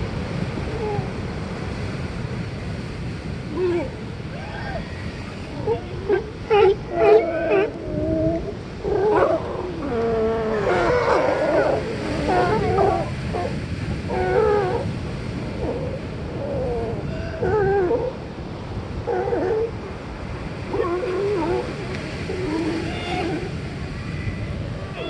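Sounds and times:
ocean surf: 0:00.0 - 0:25.0
sea lions barking: 0:03.4 - 0:18.2, 0:18.9 - 0:23.8.

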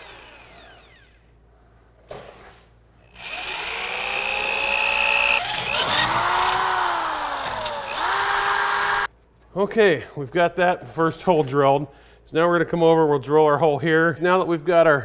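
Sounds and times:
power drill drilling into steel: 0:00.0 - 0:01.2, 0:03.2 - 0:09.1.

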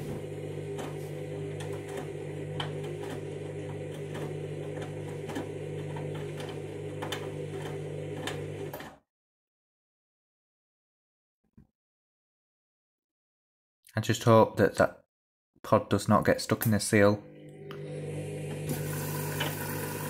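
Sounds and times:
washing machine motor hum: 0:00.0 - 0:09.0, 0:17.2 - 0:20.0.

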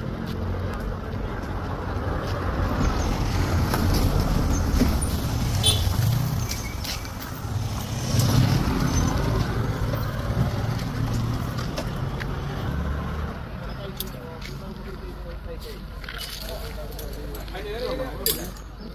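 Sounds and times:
vehicles passing on road: 0:00.0 - 0:18.9
motorcycle passing: 0:03.2 - 0:13.5.

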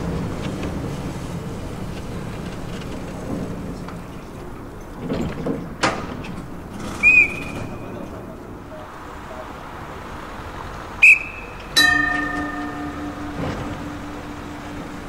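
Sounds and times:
tram rumbling past: 0:00.0 - 0:15.0
high whistle-like tone: 0:07.0 - 0:07.7, 0:11.0 - 0:15.0.

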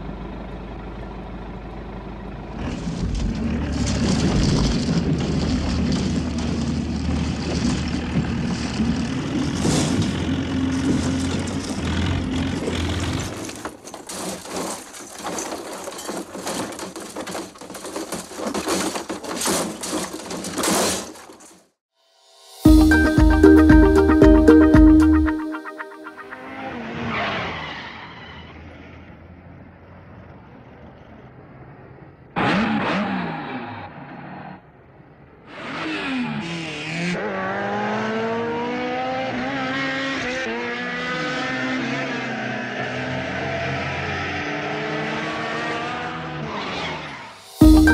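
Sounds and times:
car crashing down rocks: 0:02.7 - 0:21.7
sports car engines racing: 0:26.2 - 0:47.4.

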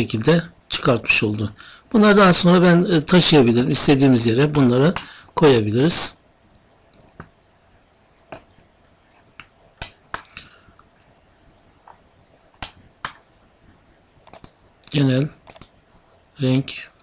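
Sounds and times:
computer mouse clicking: 0:06.5 - 0:07.3, 0:08.3 - 0:11.1, 0:14.2 - 0:15.8.

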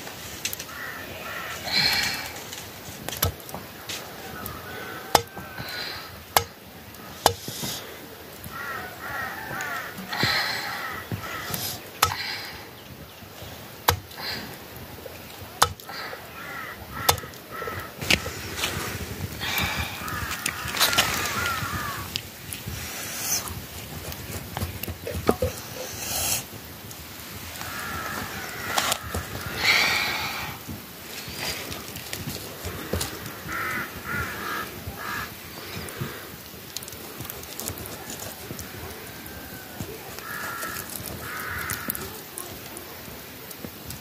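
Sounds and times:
bird calls: 0:32.8 - 0:36.2.

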